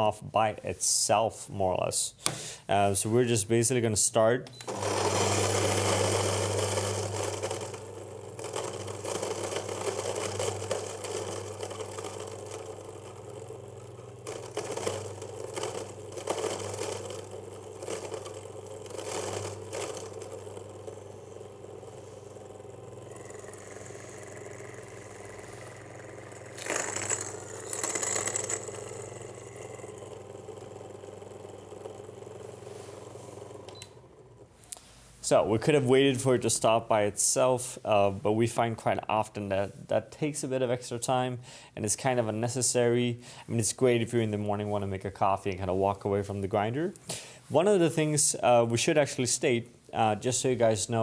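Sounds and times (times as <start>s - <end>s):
electric coffee grinder grinding beans: 4.6s - 35.0s.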